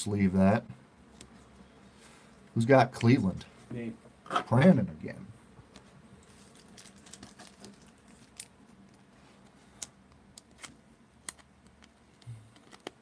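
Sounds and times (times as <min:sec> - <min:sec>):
plastic sleeve crinkling: 0:06.2 - 0:08.9.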